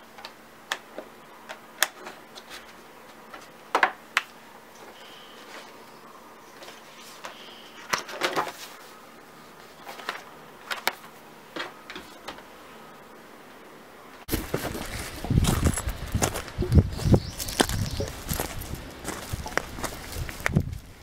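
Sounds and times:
footsteps on pebbles: 0:14.3 - 0:21.0.

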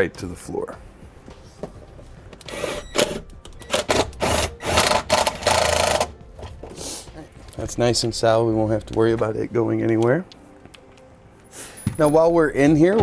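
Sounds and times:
cordless drill driving screws: 0:02.5 - 0:06.1.

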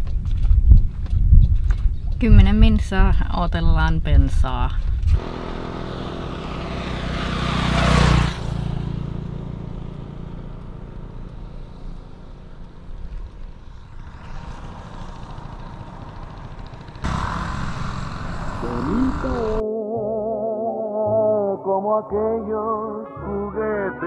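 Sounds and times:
motor vehicle passing: 0:04.8 - 0:19.6.

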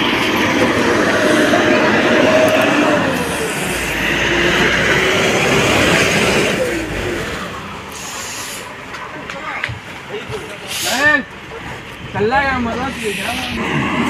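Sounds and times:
bus engine passing: 0:00.0 - 0:14.0.

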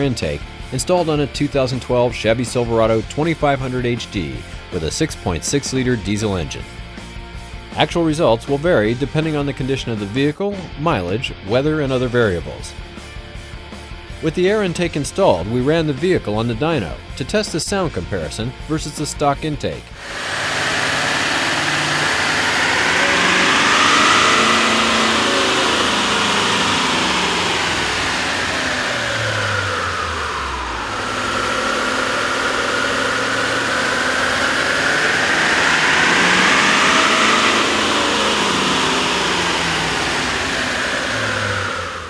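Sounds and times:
diesel pickup engine revving: 0:00.0 - 0:04.7, 0:20.0 - 0:42.0
turbo whine: 0:20.0 - 0:42.0.

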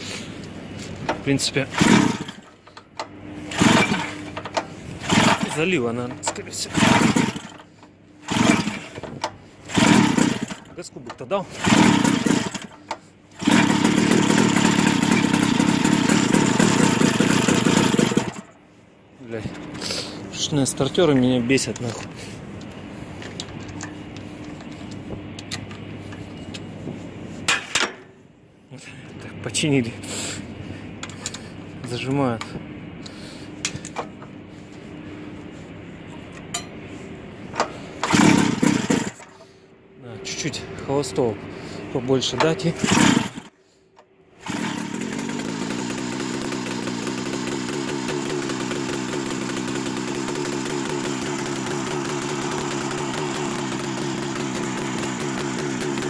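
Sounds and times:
loud clatter: 0:01.7 - 0:02.5, 0:13.4 - 0:18.5
two-stroke engine fast idle: 0:01.7 - 0:02.5, 0:03.5 - 0:04.3, 0:05.0 - 0:05.6, 0:06.7 - 0:08.9, 0:09.7 - 0:10.7, 0:11.6 - 0:18.5, 0:38.0 - 0:39.3, 0:42.8 - 0:43.5, 0:44.4 - 0:56.0
snowmobile engine idling: 0:44.4 - 0:56.0.

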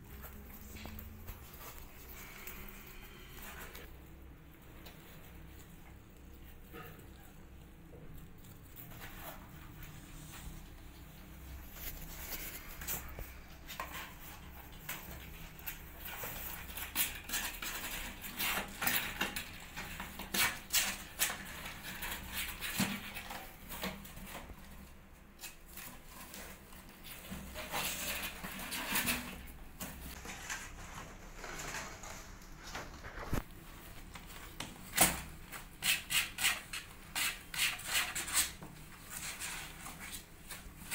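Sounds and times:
claws scratching cardboard: 0:35.8 - 0:40.2.

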